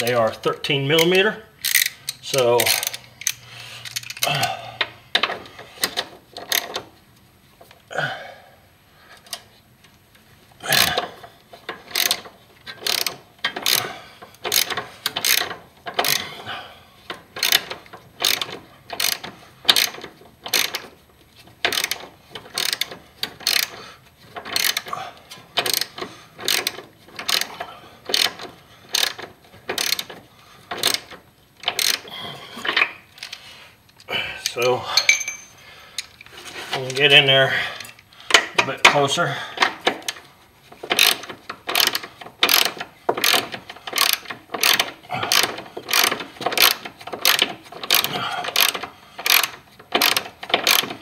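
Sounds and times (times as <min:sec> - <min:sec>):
ratchet clicking: 0:01.0 - 0:04.3, 0:05.2 - 0:06.8, 0:11.6 - 0:16.3, 0:17.3 - 0:20.9, 0:21.6 - 0:23.8, 0:24.4 - 0:24.9, 0:25.6 - 0:32.0, 0:40.9 - 0:51.0.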